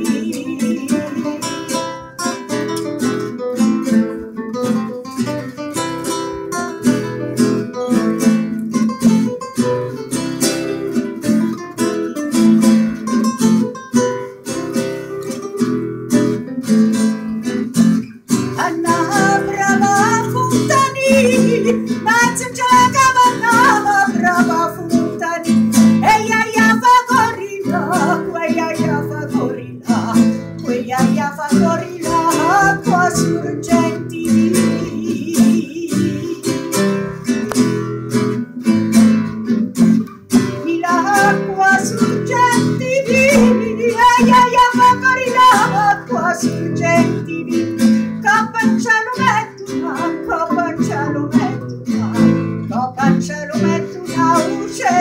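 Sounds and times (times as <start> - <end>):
woman singing: 0.0 - 2.7, 18.4 - 37.1, 40.4 - 55.0
acoustic guitars strumming and picking: 0.0 - 55.0.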